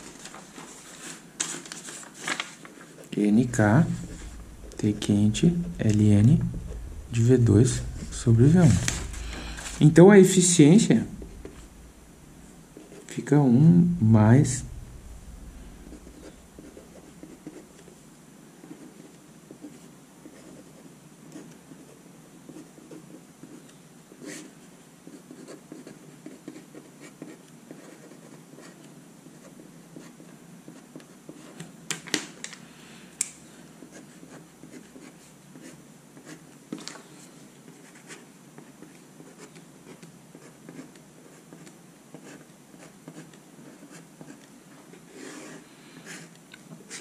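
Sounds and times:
pen scratching on paper: 15.8 - 18.0, 24.2 - 31.6, 37.7 - 47.0.

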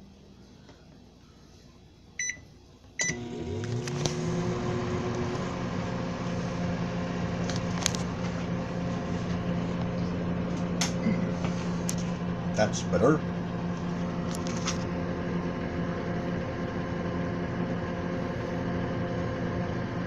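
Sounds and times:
microwave oven humming: 2.1 - 20.0
keypad beeps: 2.2 - 2.4.

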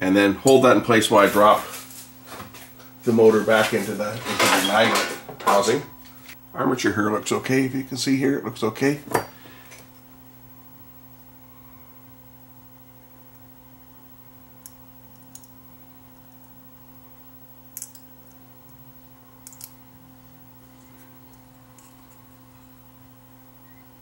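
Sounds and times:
steady low hum: 0.0 - 24.0
small plastic and metal clicks: 19.4 - 19.8.

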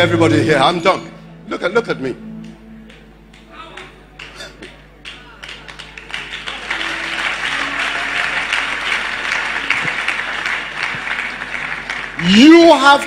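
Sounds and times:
congregation applauding: 2.9 - 13.0.

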